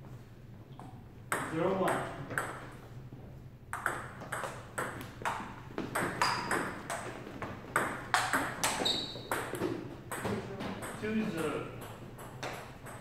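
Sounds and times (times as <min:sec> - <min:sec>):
ping-pong ball clicking: 0:03.7 - 0:07.0, 0:07.8 - 0:11.0.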